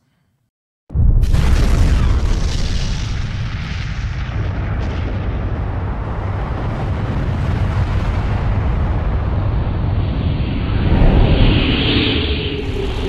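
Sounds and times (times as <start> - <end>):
huge explosion rumbling: 0.9 - 13.0.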